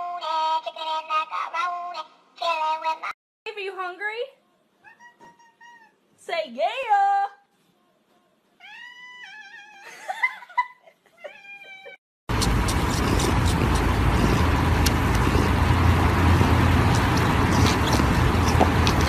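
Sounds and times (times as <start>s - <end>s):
loud steady rumbling noise: 12.3s - 19.0s.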